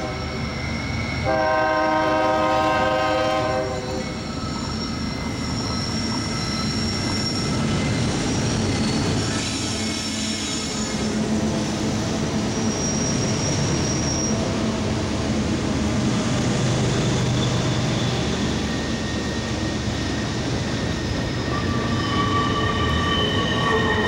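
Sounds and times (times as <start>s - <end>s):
high wheel squeals: 0.0s - 1.5s, 3.5s - 11.2s, 12.4s - 14.6s, 16.8s - 24.0s
diesel locomotives passing: 0.0s - 24.0s
train wheels on rails: 0.0s - 24.0s.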